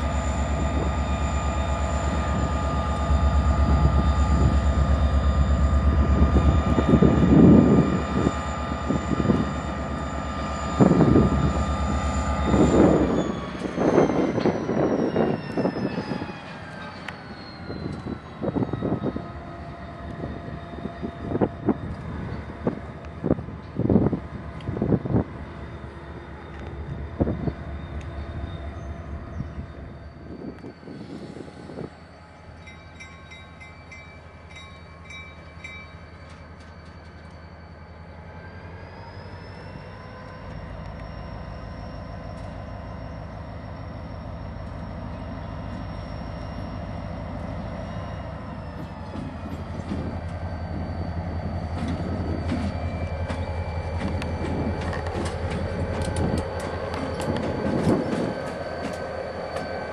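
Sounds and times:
diesel locomotive engine running: 0.0s - 59.9s.

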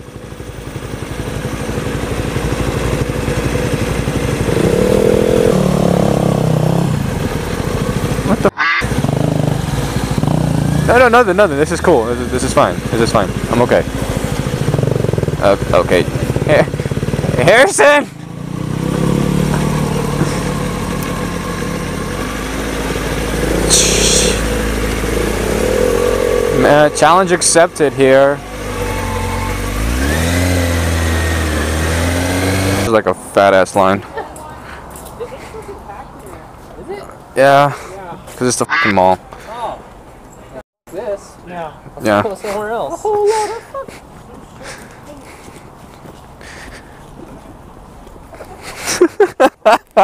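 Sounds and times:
motorcycle engines at low speed: 0.0s - 36.0s.

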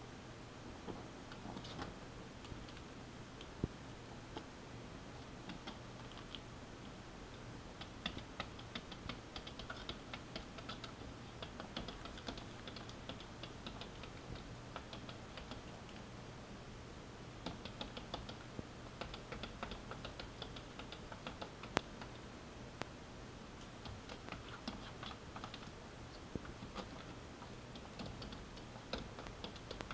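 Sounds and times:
faint steady hum: 0.0s - 29.9s.

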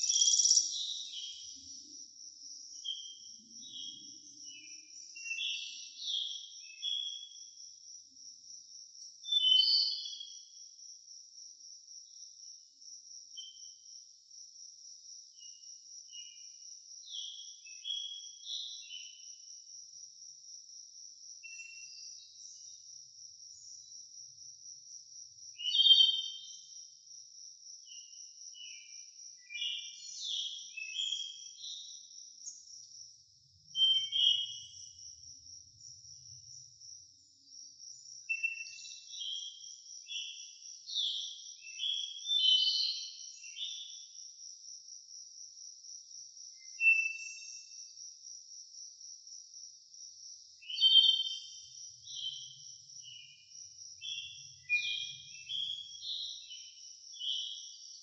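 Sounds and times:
high-pitched insect-like trill: 0.0s - 2.2s.

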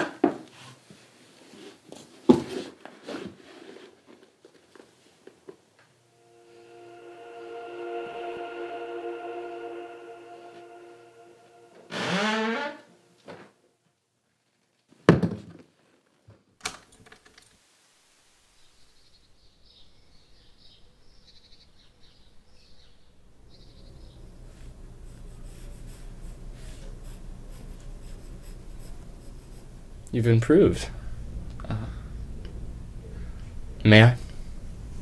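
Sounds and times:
wavering sliding pitched sound: 6.1s - 12.8s.

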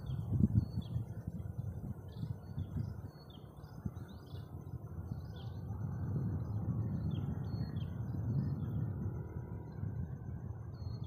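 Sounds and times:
small birds chirping: 0.0s - 5.7s
wind rumbling on microphone: 0.0s - 11.0s.

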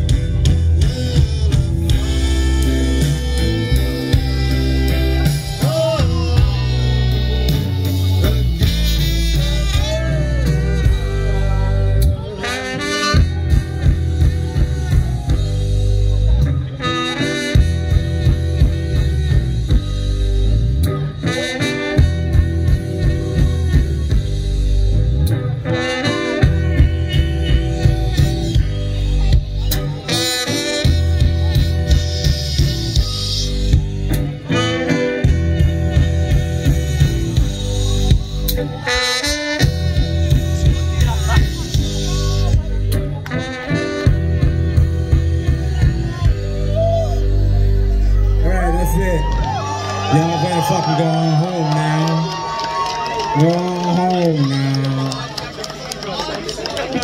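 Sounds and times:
bass guitar: 0.0s - 57.0s
drums: 0.0s - 57.0s
electric guitars: 0.0s - 57.0s
clarinet playing melody: 0.8s - 20.3s, 25.5s - 50.2s.

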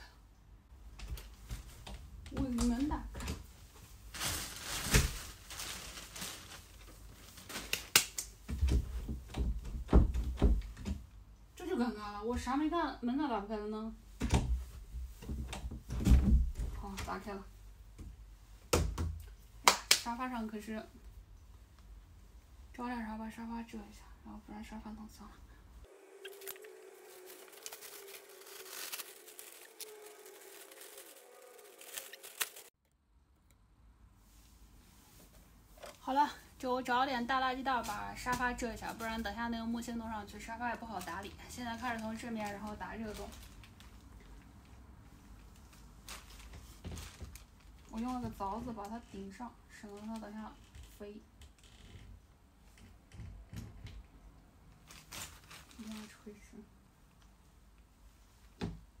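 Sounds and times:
plastic bag rustling and crinkling: 2.8s - 8.0s, 25.9s - 32.8s, 40.2s - 44.6s, 45.2s - 50.6s, 54.8s - 56.6s.

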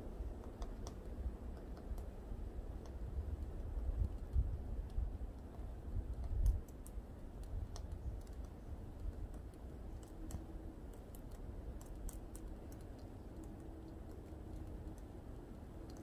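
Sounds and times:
woodpecker tapping on tree: 0.3s - 16.0s
wind rumble on microphone: 1.2s - 10.9s.

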